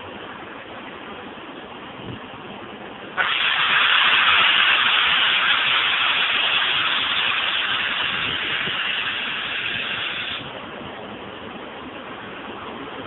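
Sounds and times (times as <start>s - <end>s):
steam hissing from locomotive: 3.2s - 10.6s.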